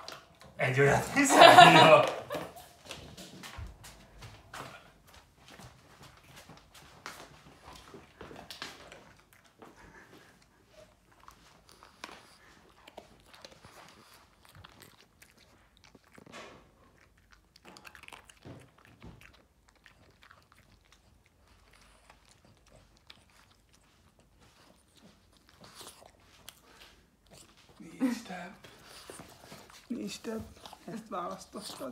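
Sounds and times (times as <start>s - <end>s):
dog chewing a treat: 7.2s - 31.9s.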